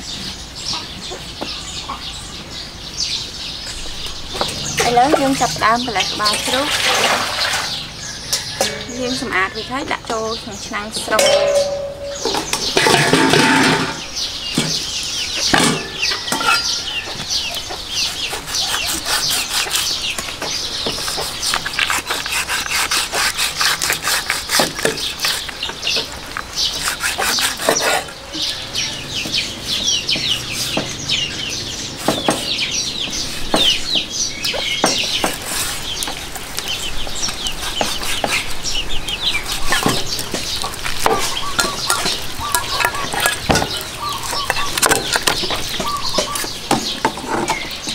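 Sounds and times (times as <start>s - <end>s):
small birds chirping: 0.0s - 47.9s
chickens clucking: 0.6s - 2.9s, 3.6s - 22.9s, 23.8s - 47.9s
cleaver chopping on wooden block: 32.0s - 32.6s.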